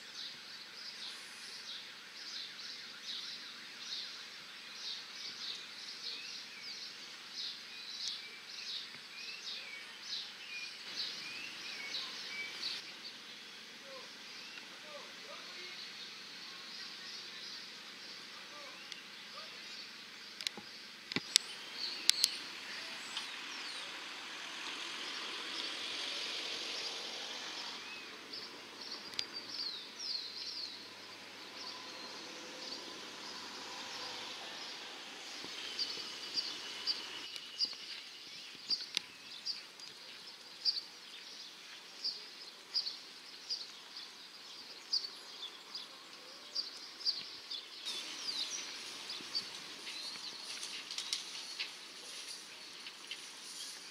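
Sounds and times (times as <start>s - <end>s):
outdoor background hiss: 0.0s - 53.9s
small birds chirping: 0.0s - 53.9s.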